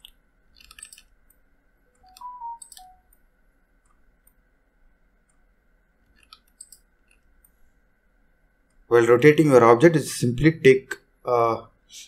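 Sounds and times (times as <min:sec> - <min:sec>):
computer mouse clicking: 0:00.0 - 0:03.2, 0:06.0 - 0:07.6
faint high hum: 0:00.0 - 0:12.0.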